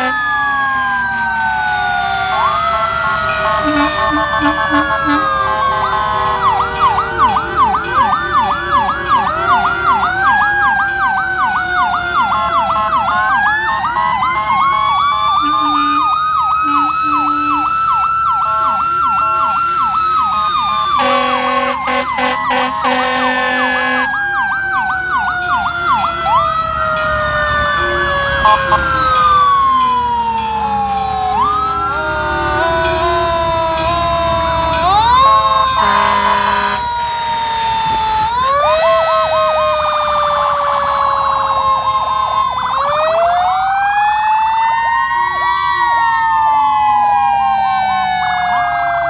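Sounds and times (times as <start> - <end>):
fire engine sirens: 0.0 - 49.0
loud horn blast: 3.2 - 6.9, 15.4 - 17.7, 20.8 - 24.2, 32.1 - 33.9, 35.7 - 36.9.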